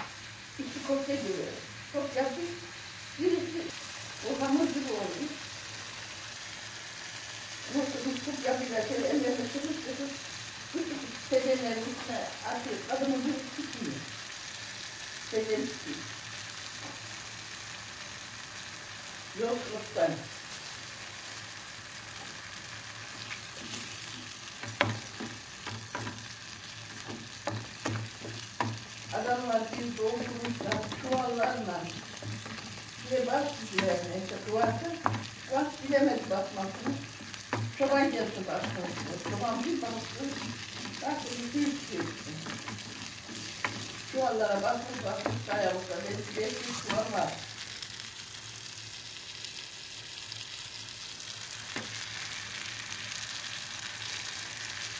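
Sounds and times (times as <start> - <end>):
food sizzling in a pot: 0.0 - 54.9
wooden spoon scraping a pot: 23.1 - 47.1.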